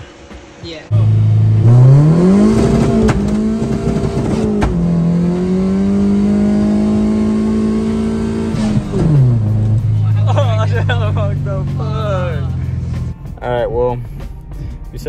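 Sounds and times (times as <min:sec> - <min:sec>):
car engine at raised revs: 0:00.9 - 0:13.1.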